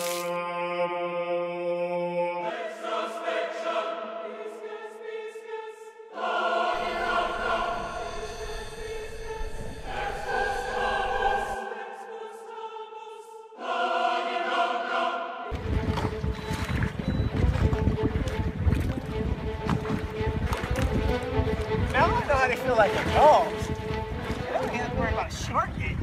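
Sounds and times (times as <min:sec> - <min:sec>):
choir singing held chords: 0:00.2 - 0:15.8.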